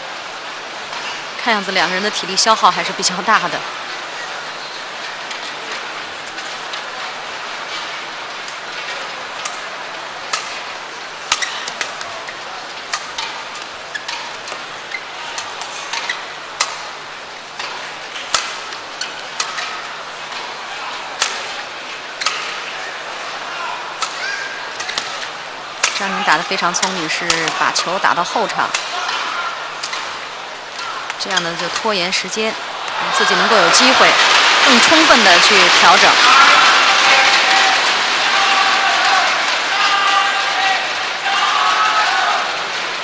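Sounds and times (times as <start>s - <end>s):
crowd murmur: 0.0s - 43.0s
rackets hitting shuttlecock: 17.6s - 18.6s, 22.2s - 22.6s.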